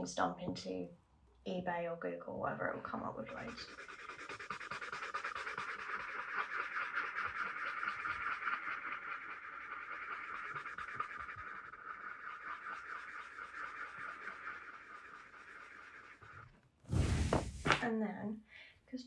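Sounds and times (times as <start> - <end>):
blending stump scratching paper: 2.9 - 17.6.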